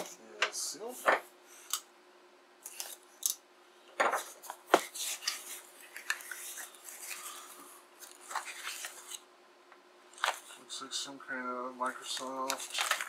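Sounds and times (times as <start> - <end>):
cardboard rustling: 4.2 - 9.2.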